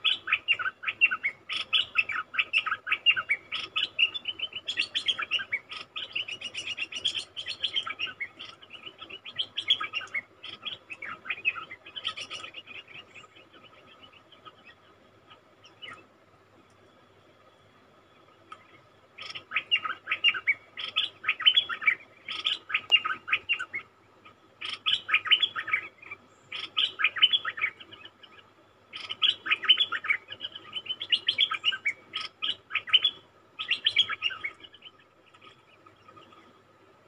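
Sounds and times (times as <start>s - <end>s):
bulbul singing: 18.5s - 23.9s, 24.6s - 36.4s.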